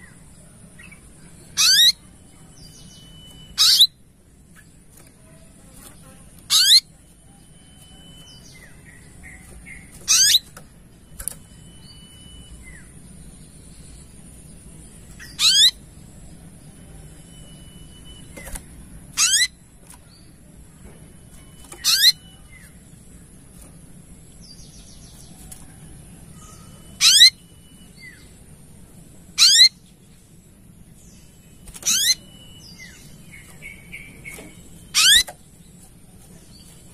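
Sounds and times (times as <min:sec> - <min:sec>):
bird sharp sweeping calls: 0:01.6 - 0:02.0, 0:02.8 - 0:04.0, 0:08.2 - 0:10.5, 0:15.2 - 0:15.8, 0:19.1 - 0:19.6, 0:21.7 - 0:22.3, 0:26.4 - 0:27.4, 0:29.4 - 0:29.8, 0:31.6 - 0:35.4.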